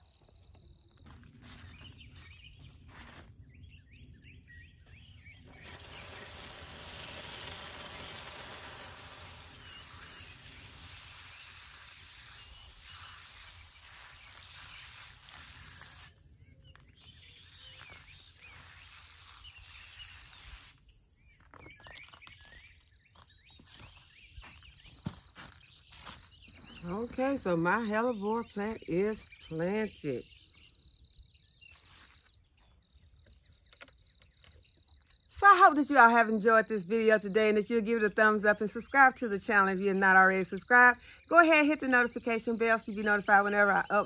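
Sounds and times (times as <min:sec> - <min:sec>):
birds chirping: 0:00.0 - 0:07.2, 0:16.2 - 0:44.0
hose spraying water: 0:05.4 - 0:16.3, 0:17.0 - 0:20.9.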